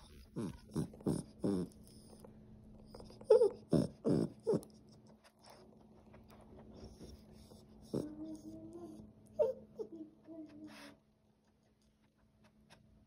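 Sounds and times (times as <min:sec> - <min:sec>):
puppy whining and grumbling: 0:00.0 - 0:05.1, 0:06.9 - 0:10.9.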